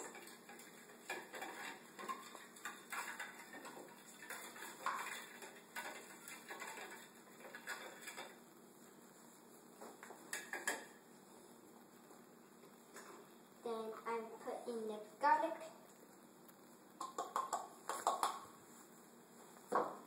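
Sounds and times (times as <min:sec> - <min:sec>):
whisk scraping glass bowl: 0:00.0 - 0:08.4.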